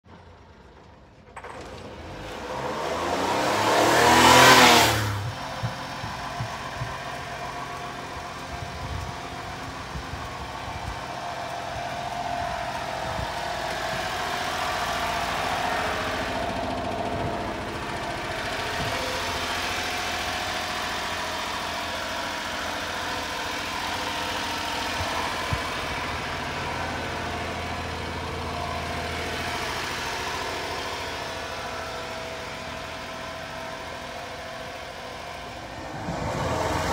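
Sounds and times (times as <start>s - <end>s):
truck engine idling: 0.1s - 36.9s
loud rising rush of noise: 32.1s - 36.9s.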